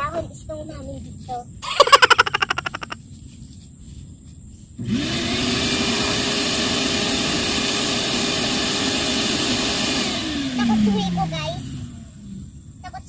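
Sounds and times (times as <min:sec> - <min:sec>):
shop vacuum motor whine: 0:04.8 - 0:12.5.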